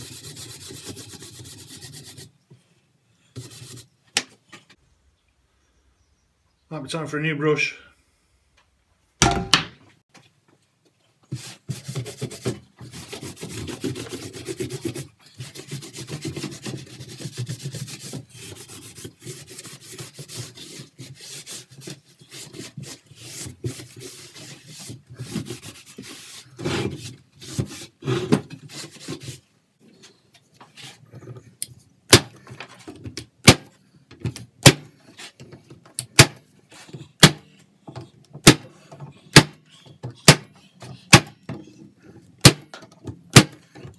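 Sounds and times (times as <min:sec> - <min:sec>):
brush scrubbing wood: 0:00.0 - 0:02.3, 0:11.3 - 0:28.0.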